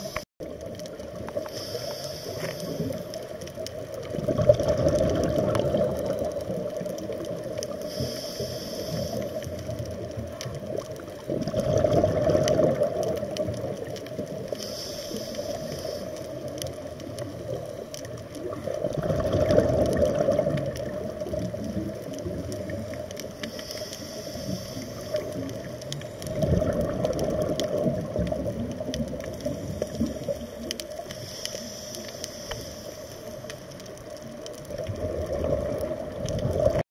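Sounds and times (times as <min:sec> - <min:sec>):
regulator inhalation hiss: 0:00.0 - 0:00.3, 0:01.4 - 0:03.2, 0:07.7 - 0:09.6, 0:14.5 - 0:16.4, 0:23.3 - 0:25.7, 0:29.4 - 0:33.7
exhaled bubbles rushing: 0:03.8 - 0:07.7, 0:09.6 - 0:14.5, 0:16.7 - 0:23.1, 0:25.1 - 0:30.5, 0:34.6 - 0:36.8.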